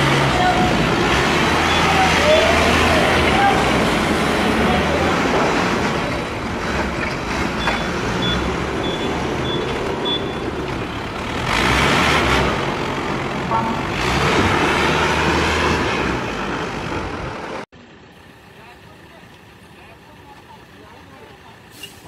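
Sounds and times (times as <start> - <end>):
forklift engine running: 0.0 - 21.7
reversing alarm beeps: 7.6 - 10.5.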